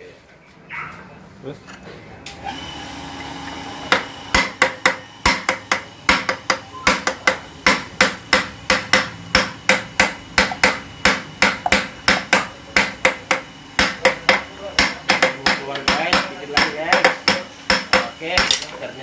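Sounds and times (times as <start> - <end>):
hammer striking metal: 3.9 - 18.7.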